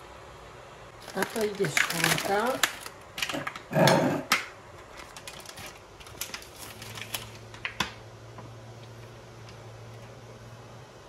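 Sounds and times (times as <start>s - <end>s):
low steady hum: 0.0s - 11.0s
packaging rustle: 1.0s - 3.7s, 4.8s - 8.0s
clicks and taps of food handling: 1.2s - 10.1s.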